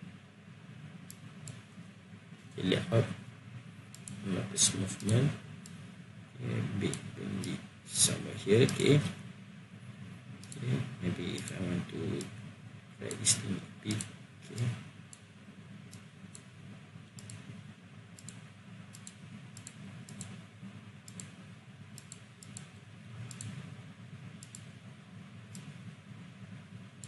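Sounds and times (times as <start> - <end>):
steady low hum: 0.0 - 27.0
computer mouse clicking: 1.0 - 1.7, 3.9 - 4.2, 4.9 - 5.8, 10.4 - 12.3, 13.9 - 15.3, 15.9 - 16.5, 17.1 - 17.6, 18.2 - 20.4, 21.0 - 23.7, 24.3 - 24.8, 25.4 - 25.8.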